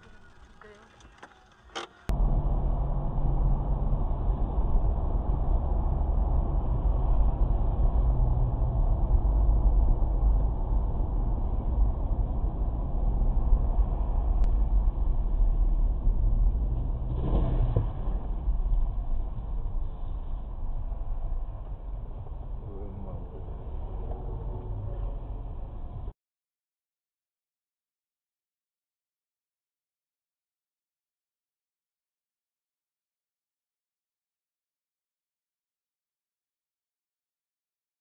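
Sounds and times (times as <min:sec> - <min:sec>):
car engine and tyres rumbling: 0:00.0 - 0:26.1.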